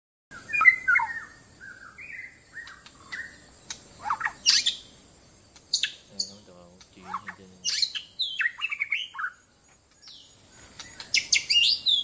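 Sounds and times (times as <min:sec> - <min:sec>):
bird singing whistled phrases: 0:00.3 - 0:03.4, 0:04.0 - 0:04.9, 0:07.0 - 0:09.4, 0:10.0 - 0:12.0.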